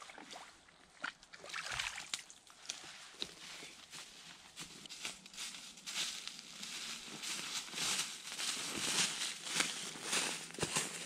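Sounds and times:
footsteps crunching through dry leaves: 0:03.0 - 0:11.0.

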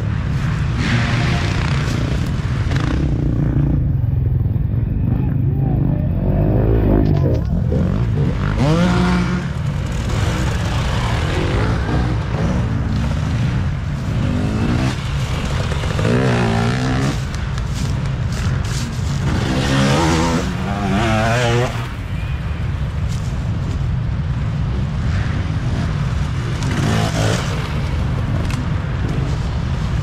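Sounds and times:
dirt bikes racing past: 0:00.0 - 0:23.6, 0:24.6 - 0:30.0.

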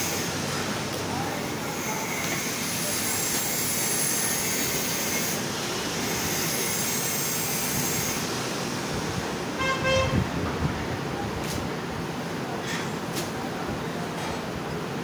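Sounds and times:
short high-pitched toot: 0:09.6 - 0:10.2.

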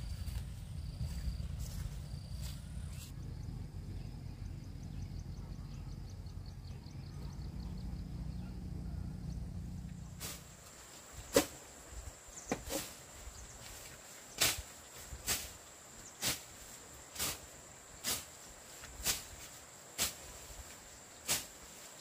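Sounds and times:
grass cut by hand swishing: 0:10.1 - 0:11.7, 0:12.5 - 0:22.0.

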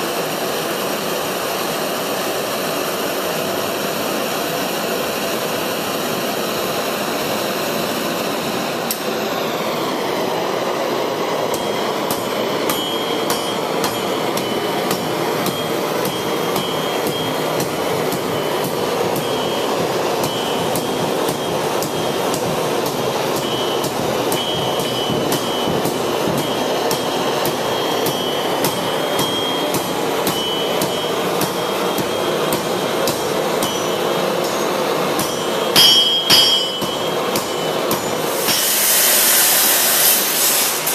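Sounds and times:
forge air blast roar: 0:03.6 - 0:40.9
hammer striking steel on anvil: 0:11.5 - 0:40.1.

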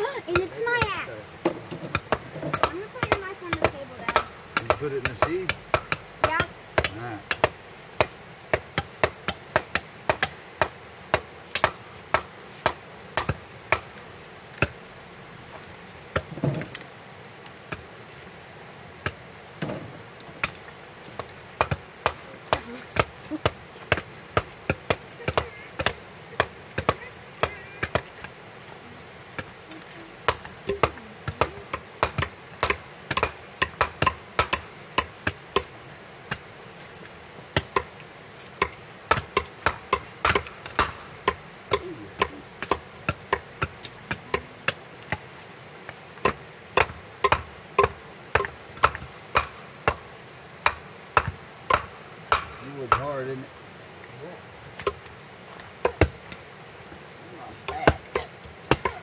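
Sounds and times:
axes chopping firewood: 0:00.0 - 0:14.8, 0:15.5 - 0:17.9, 0:19.0 - 0:28.5, 0:29.3 - 0:53.4, 0:54.8 - 0:56.5, 0:57.5 - 0:59.0.

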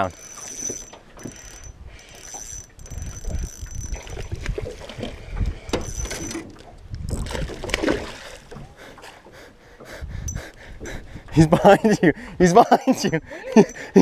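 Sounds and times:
water lapping against boat hull: 0:00.0 - 0:14.0
wind buffeting microphone: 0:01.0 - 0:08.9, 0:09.6 - 0:14.0.

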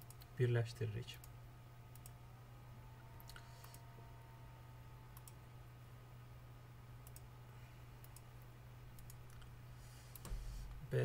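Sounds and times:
computer mouse clicks: 0:00.0 - 0:00.3, 0:01.2 - 0:02.2, 0:03.2 - 0:03.9, 0:05.1 - 0:05.4, 0:07.0 - 0:07.3, 0:08.0 - 0:08.3, 0:08.9 - 0:09.5, 0:10.1 - 0:10.5
low steady hum: 0:00.0 - 0:11.0.

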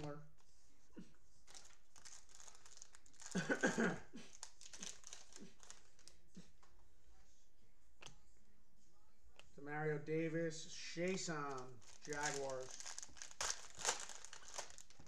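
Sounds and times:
plastic wrapper crinkling and tearing: 0:01.4 - 0:03.4, 0:04.2 - 0:06.2, 0:11.1 - 0:15.0.

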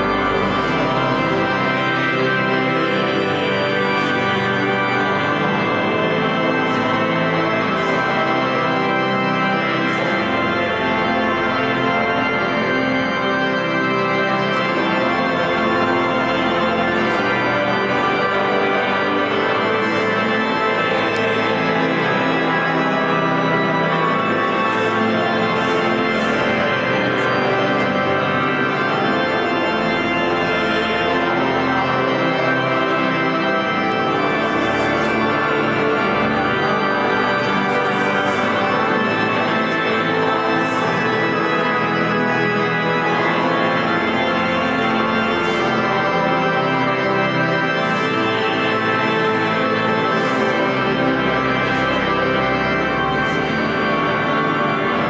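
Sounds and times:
pipe organ playing chords: 0:00.0 - 0:55.0.

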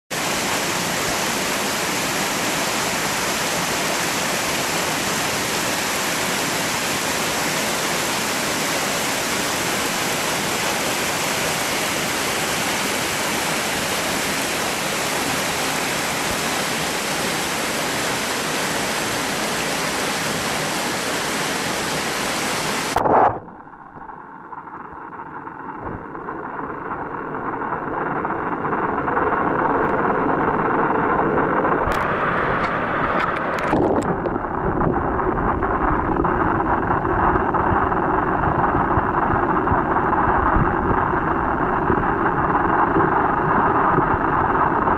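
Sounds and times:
stream cascade rushing: 0:00.1 - 0:23.0
muffled underwater water sound: 0:00.1 - 0:44.9.

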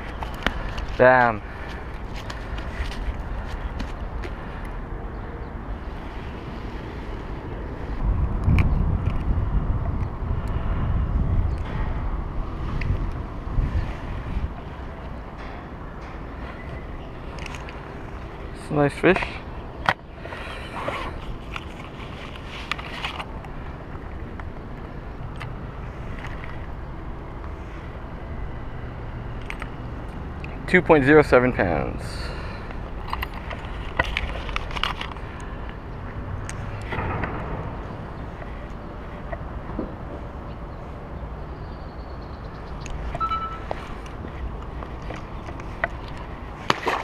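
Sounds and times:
outdoor background rumble: 0:00.0 - 0:47.0
rustle of handling gear: 0:20.2 - 0:23.5.

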